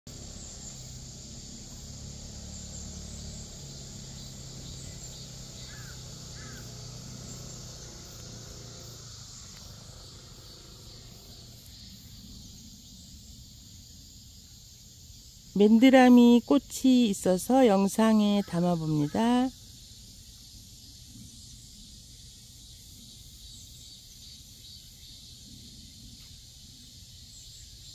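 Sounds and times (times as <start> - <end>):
bird chirps: 0.1 - 14.0
high-pitched hiss: 0.1 - 27.9.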